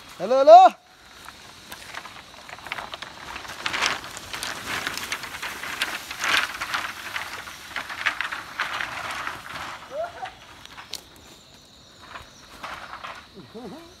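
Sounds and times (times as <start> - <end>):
bamboo canes dragged over leaves: 0.0 - 14.0.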